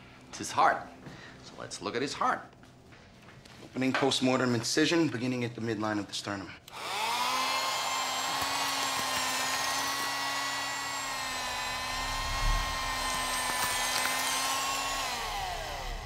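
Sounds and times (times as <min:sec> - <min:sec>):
bone saw high whine: 0:06.8 - 0:16.0.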